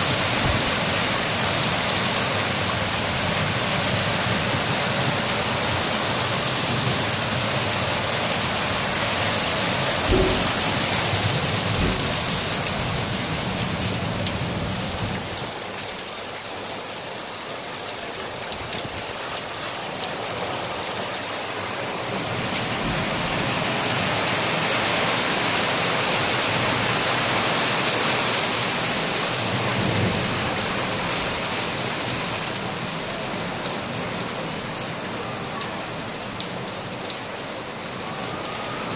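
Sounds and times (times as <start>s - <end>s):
heavy rain on street: 0.0s - 38.9s
low thump: 10.0s - 12.3s.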